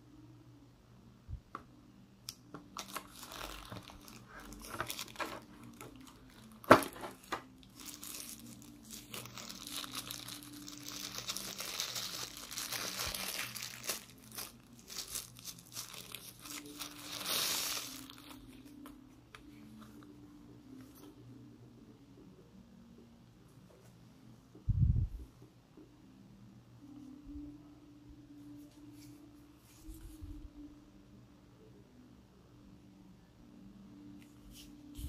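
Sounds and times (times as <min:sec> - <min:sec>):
plastic bag crinkling: 0:02.7 - 0:18.6.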